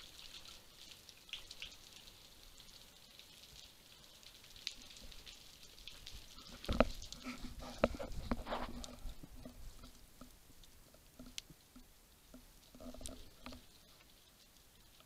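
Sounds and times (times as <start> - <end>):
faint underwater crackle: 0.0 - 15.0
underwater knocks and bumps: 6.5 - 10.3.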